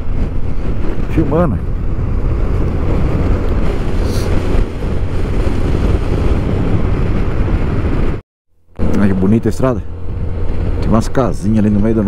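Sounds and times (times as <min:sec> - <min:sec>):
wind buffeting microphone: 0:00.0 - 0:08.2, 0:08.8 - 0:12.0.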